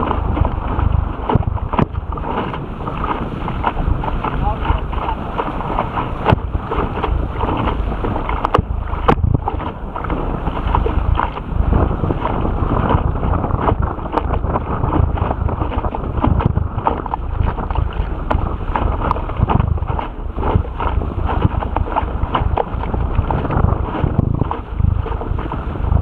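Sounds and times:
boat hull slapping through water: 0.0s - 26.0s
wind buffeting microphone: 0.0s - 26.0s
rush of spray: 2.0s - 12.9s.

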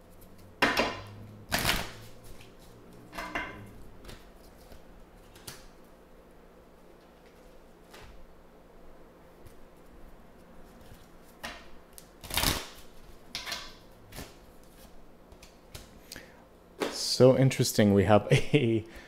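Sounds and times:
cards slapping and rustling: 4.0s - 5.8s.

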